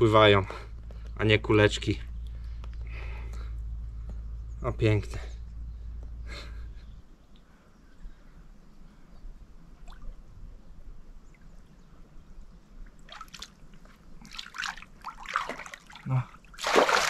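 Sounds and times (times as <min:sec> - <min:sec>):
small water splashes: 0:09.8 - 0:10.3, 0:12.8 - 0:17.0
water trickling and dripping: 0:11.2 - 0:17.0.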